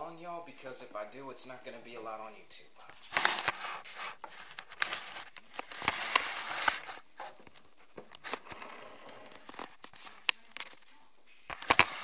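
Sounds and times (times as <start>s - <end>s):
cloth rustling on microphone: 2.8s - 10.1s.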